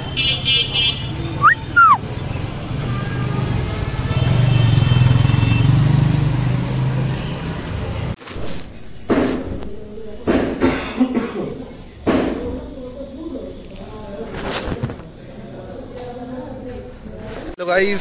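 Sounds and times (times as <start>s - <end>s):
street traffic hum: 0.0s - 18.0s.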